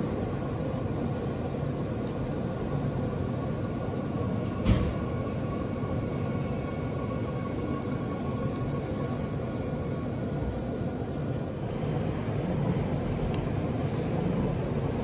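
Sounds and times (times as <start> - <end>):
faint steady hum: 0.0 - 15.0
train rumble from inside: 0.0 - 15.0.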